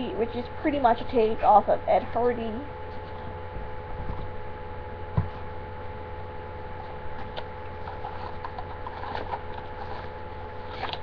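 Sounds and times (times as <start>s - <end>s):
electrical hum: 0.0s - 11.0s
cardboard box being opened: 7.8s - 11.0s.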